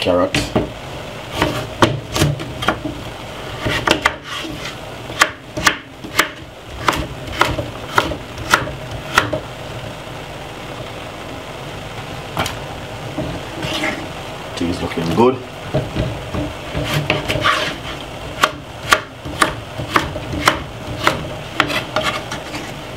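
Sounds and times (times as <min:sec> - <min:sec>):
knife chopping on wooden board: 0:01.4 - 0:03.0, 0:03.6 - 0:04.3, 0:05.1 - 0:09.4, 0:15.8 - 0:17.8, 0:18.4 - 0:22.3.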